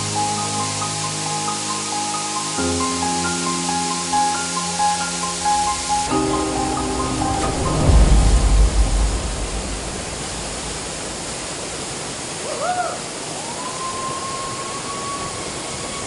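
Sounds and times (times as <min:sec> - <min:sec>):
long held high tone: 0:00.0 - 0:11.2
waterfall rushing: 0:00.0 - 0:16.0
deep rumble: 0:05.0 - 0:12.1.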